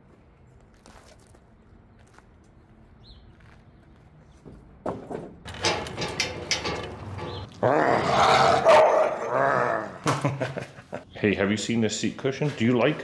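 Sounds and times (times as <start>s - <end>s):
dog growling: 7.6s - 10.0s.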